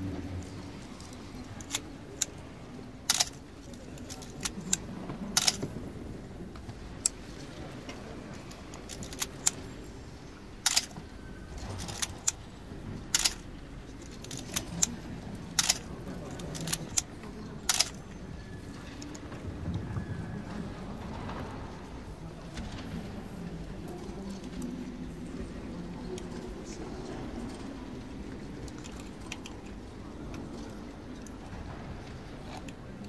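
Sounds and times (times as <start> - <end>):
camera controls clicking: 3.1 - 3.3, 5.4 - 5.6, 10.7 - 11.0, 13.2 - 13.4, 15.6 - 15.8, 17.7 - 18.0.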